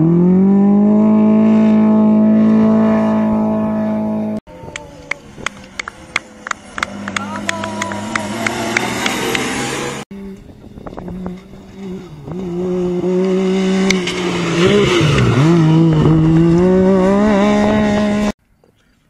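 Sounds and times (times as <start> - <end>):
engine revving hard: 0.0 - 4.4, 6.6 - 10.1, 11.0 - 18.4.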